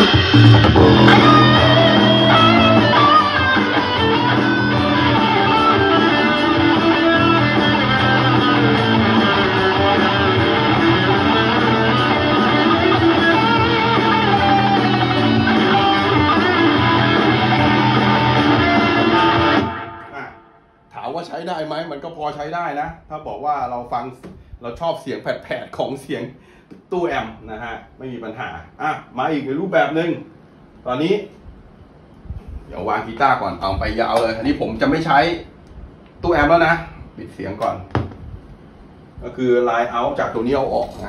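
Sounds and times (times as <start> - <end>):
electric guitar through amp: 0.0 - 20.6.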